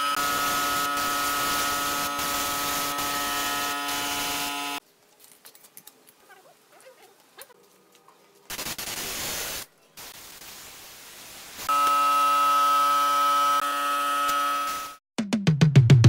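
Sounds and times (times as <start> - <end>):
electronic buzzing tone: 0.0 - 4.8, 11.7 - 15.0
burst of hiss: 8.5 - 11.7
electronic music with kicks: 15.2 - 16.0.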